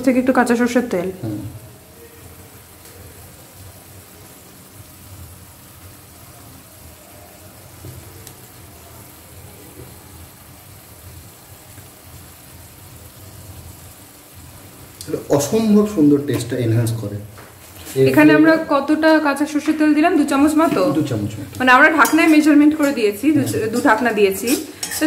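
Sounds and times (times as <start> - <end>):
paste sizzling in a pan: 0.1 - 25.0.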